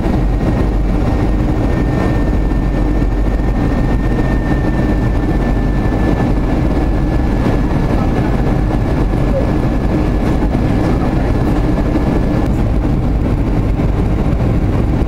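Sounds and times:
airplane cabin rumble: 0.0s - 15.0s
faint high whine: 0.3s - 10.0s.

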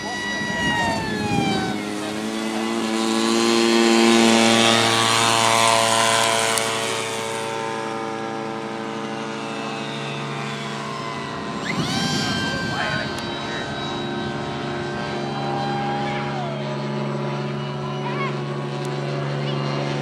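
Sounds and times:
model plane propeller whine: 0.0s - 20.0s.

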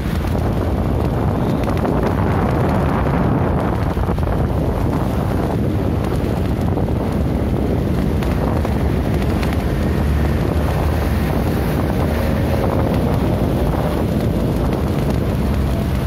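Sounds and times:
passing traffic: 0.0s - 16.0s
wind rumble on microphone: 0.0s - 16.0s.

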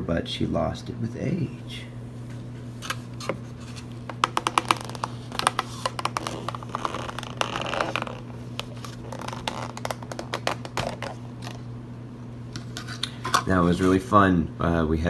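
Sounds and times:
plastic lid scraping: 3.2s - 11.6s.

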